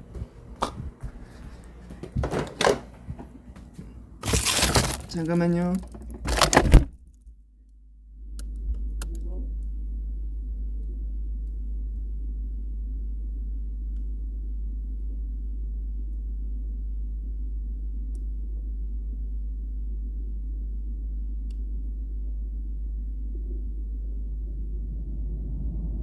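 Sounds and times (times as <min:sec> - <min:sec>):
freezer humming: 0:00.0 - 0:07.4.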